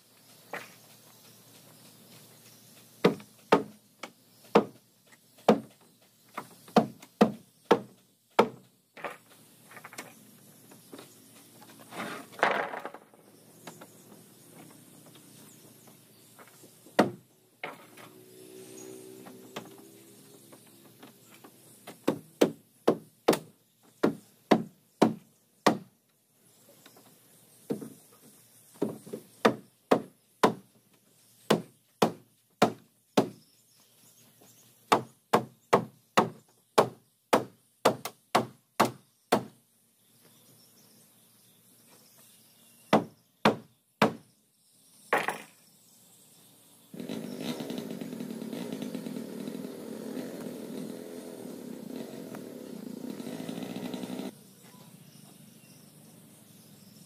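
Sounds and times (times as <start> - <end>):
engine drone: 17.8 - 21.8, 46.9 - 54.4.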